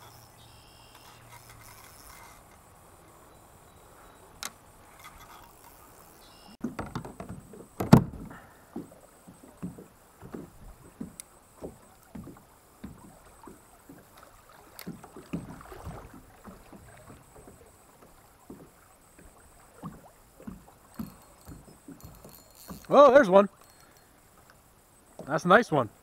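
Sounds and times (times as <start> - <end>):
faint creek water: 0.0 - 26.0
water slapping against kayak hull: 6.6 - 22.0.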